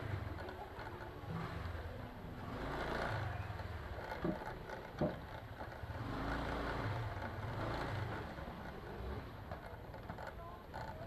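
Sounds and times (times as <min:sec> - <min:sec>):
road and wind noise: 0:00.0 - 0:11.0
scooter engine humming: 0:00.0 - 0:11.0.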